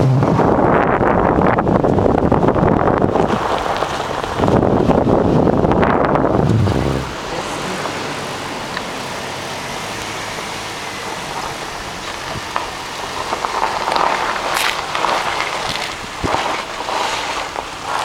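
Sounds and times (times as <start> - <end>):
wind buffeting microphone: 0.4 - 7.4.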